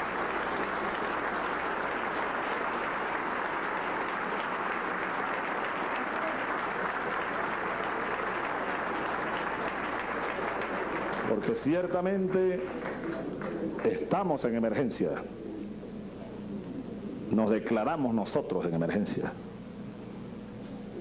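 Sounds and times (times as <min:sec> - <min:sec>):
large audience applauding: 0:00.0 - 0:14.2.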